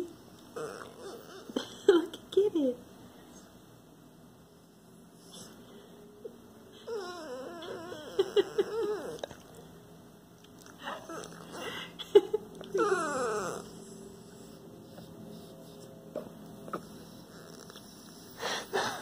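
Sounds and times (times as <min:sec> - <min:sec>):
dog whining: 0:00.0 - 0:01.6, 0:06.7 - 0:09.6, 0:10.6 - 0:12.0, 0:12.6 - 0:15.5, 0:16.7 - 0:18.8.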